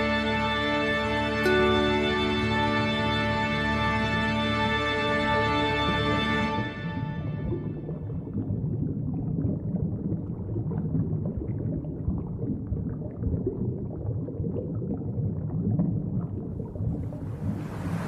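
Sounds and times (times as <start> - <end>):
water churning and splashing: 5.4 - 18.0.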